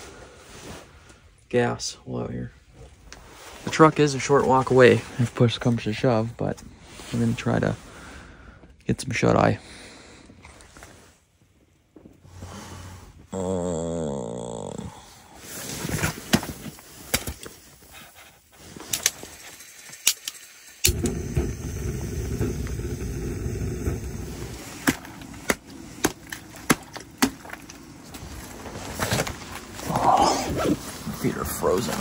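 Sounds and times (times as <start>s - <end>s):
camp stove burner rushing: 17.2s - 29.2s.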